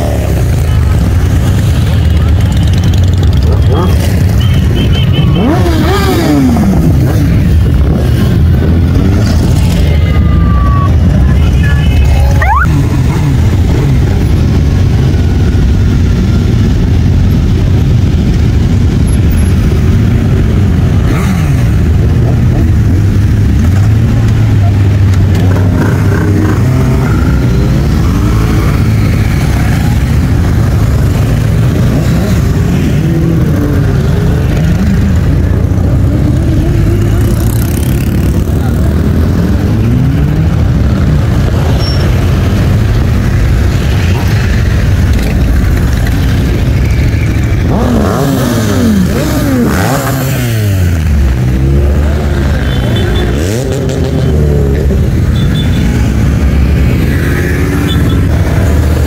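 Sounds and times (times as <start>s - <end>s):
motorcycles riding past revving: 2.9s - 10.0s, 47.3s - 59.0s.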